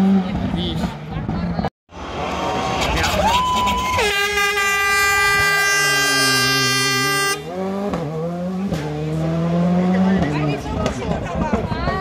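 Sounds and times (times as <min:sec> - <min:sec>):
air horn blowing: 0:03.9 - 0:07.6
rally car engine revving: 0:06.0 - 0:11.8.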